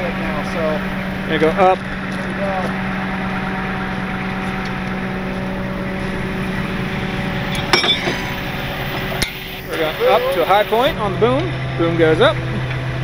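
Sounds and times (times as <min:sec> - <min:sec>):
hydraulic whine: 0:00.0 - 0:13.0
truck engine humming: 0:00.0 - 0:13.0
sharp metal clink: 0:07.5 - 0:08.4.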